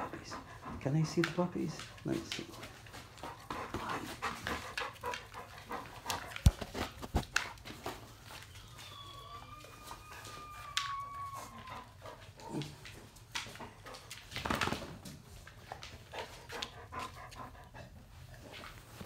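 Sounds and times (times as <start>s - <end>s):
dogs moving on tile floor: 0.1s - 19.0s
dog whining: 8.2s - 12.8s.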